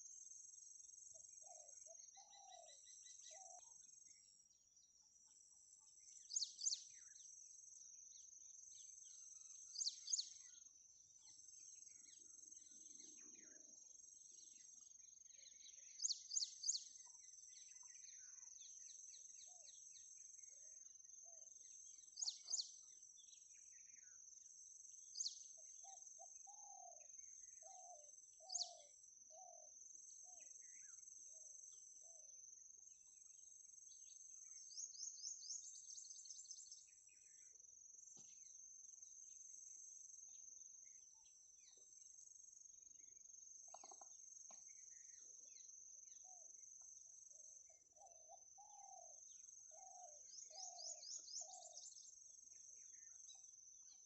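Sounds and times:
sharp bird chirps: 43.6 - 46.4, 47.8 - 52.1.

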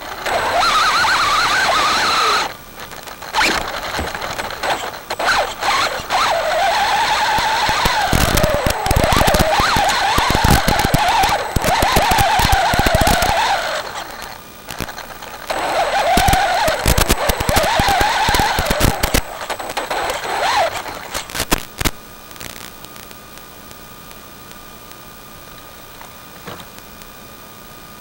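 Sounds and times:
rc truck motor whining: 0.0 - 21.6
faint steady hum: 0.0 - 28.0
tyres and chassis knocking on dirt: 3.4 - 4.6.

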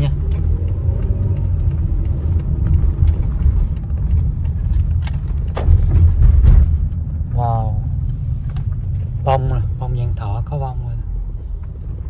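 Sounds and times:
road rumble inside car: 0.0 - 12.0
light clicks and rattles: 0.3 - 9.3.

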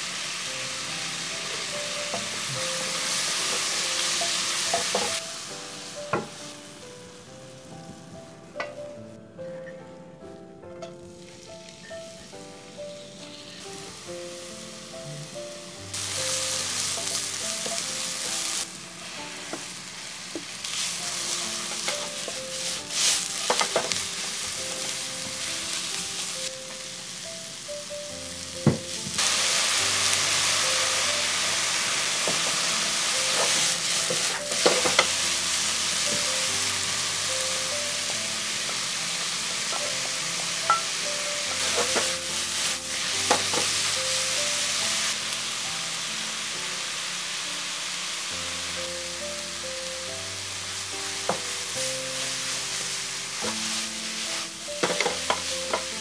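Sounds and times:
onions sizzling in a wok: 0.0 - 56.0
wooden spatula scraping a pan: 20.6 - 25.0, 41.6 - 43.8, 53.3 - 56.0.

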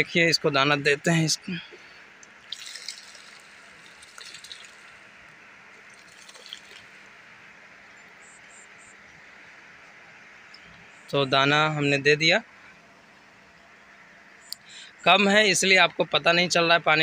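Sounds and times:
faint steady hiss: 0.0 - 17.0
grain pattering on water: 2.3 - 5.1, 5.8 - 7.0.

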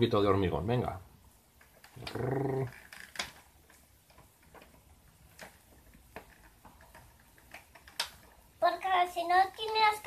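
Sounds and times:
plastic toy clicks: 1.9 - 3.4, 6.2 - 8.3.

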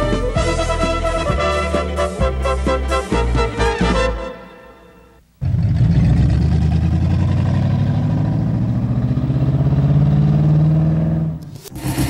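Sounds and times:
car engine running: 5.4 - 12.0.

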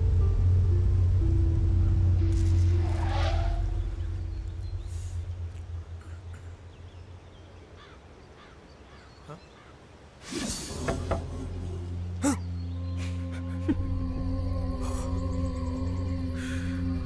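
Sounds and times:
deep low rumbling drone: 0.0 - 7.5, 10.6 - 17.0
faint bird calls: 3.6 - 10.9.

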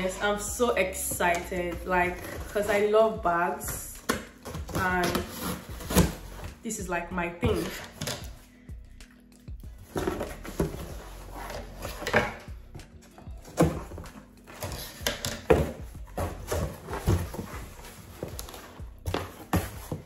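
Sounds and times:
background music: 0.0 - 20.0
cardboard box being opened: 4.0 - 6.5, 9.8 - 12.4, 13.4 - 20.0.

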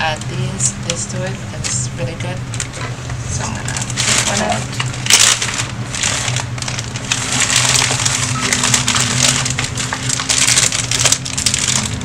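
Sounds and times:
steady low hum: 0.0 - 12.0
plastic bag crinkling: 3.6 - 12.0.

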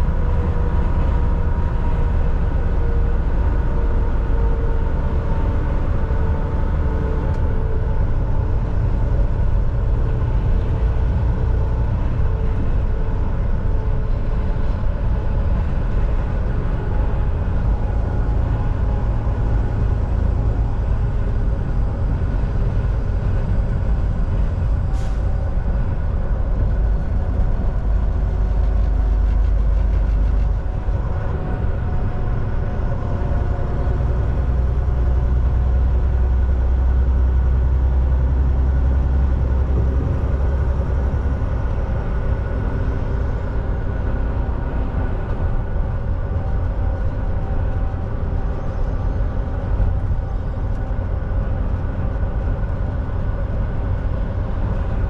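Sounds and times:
diesel engine drone: 0.0 - 55.0
road rumble: 0.0 - 55.0.

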